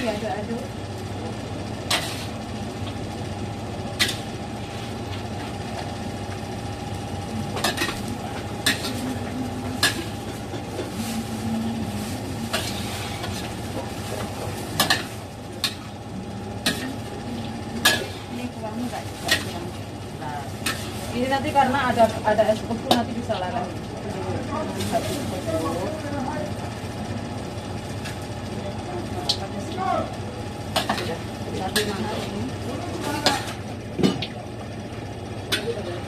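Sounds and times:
steady background hum: 0.0s - 36.0s
spatula scraping a metal wok: 1.9s - 2.4s, 11.9s - 15.1s.

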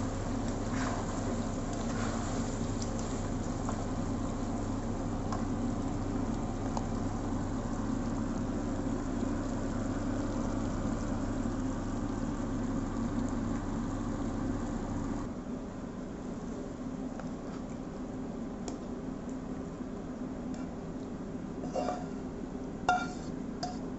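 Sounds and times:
food sizzling in a wok: 0.0s - 15.2s, 21.6s - 23.9s
low stove hum: 0.0s - 23.9s.

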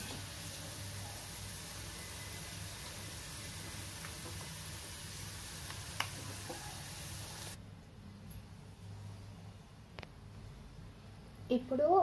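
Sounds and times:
oil sizzling: 0.0s - 7.6s.

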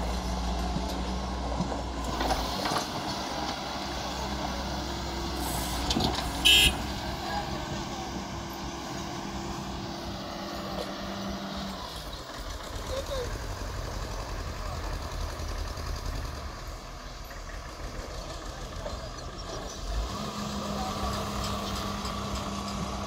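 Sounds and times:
excavator diesel engine: 0.0s - 23.0s
high-pitched horn toot: 6.4s - 6.8s.

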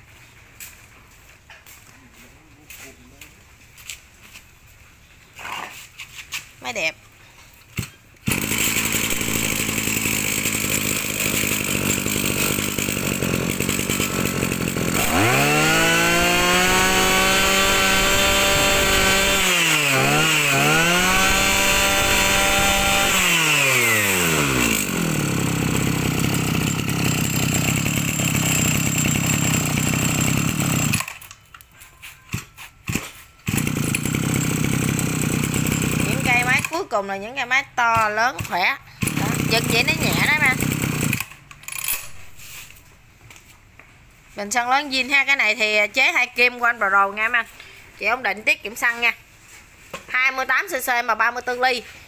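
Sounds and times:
brush cutter engine revving: 7.8s - 31.2s, 32.3s - 36.9s, 38.0s - 42.6s.

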